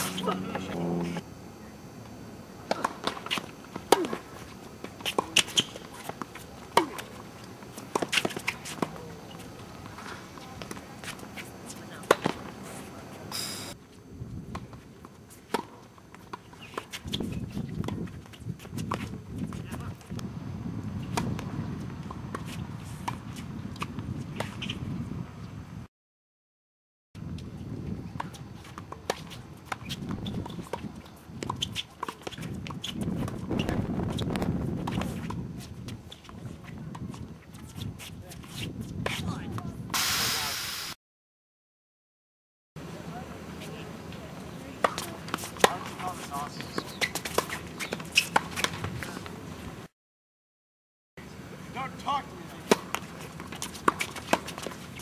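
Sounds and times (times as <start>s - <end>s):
racket hitting tennis ball: 2.7s - 4.4s, 5.0s - 12.4s, 44.8s - 49.3s, 52.6s - 54.8s
players' footsteps: 43.6s - 49.6s.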